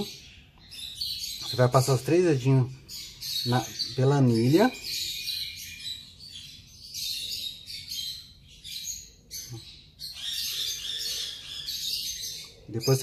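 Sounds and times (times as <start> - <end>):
baby bird cheeping: 0.0 - 13.0.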